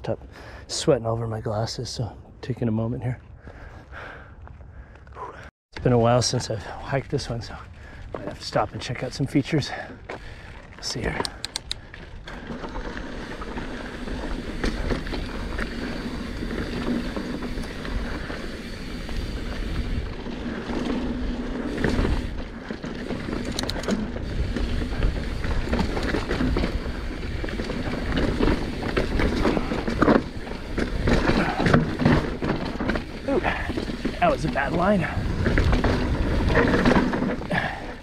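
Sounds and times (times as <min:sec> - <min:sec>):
bike knocking and rattling: 0:09.7 - 0:38.0
wind rumbling on microphone: 0:11.7 - 0:37.8
tyres rolling on dirt and rock: 0:11.8 - 0:38.0.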